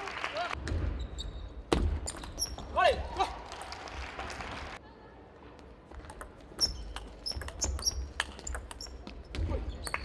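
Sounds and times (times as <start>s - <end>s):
shoe squeaks on floor: 1.0s - 2.7s, 6.6s - 10.0s
table tennis ball clicking: 6.1s - 9.0s.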